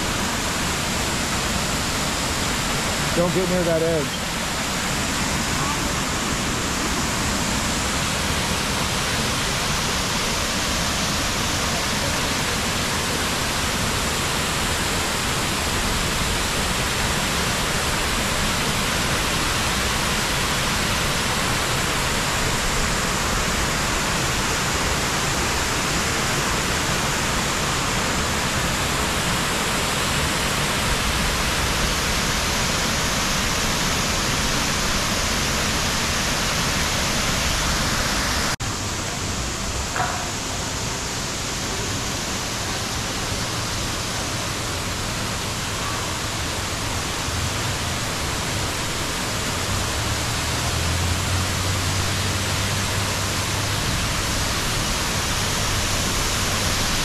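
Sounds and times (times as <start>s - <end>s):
waterfall rushing: 0.0s - 57.0s.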